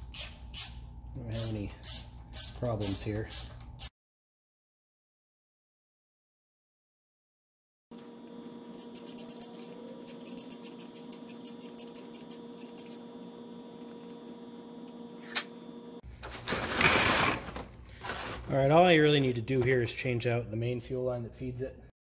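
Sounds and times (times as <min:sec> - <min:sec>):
steady hum: 0:08.0 - 0:16.0.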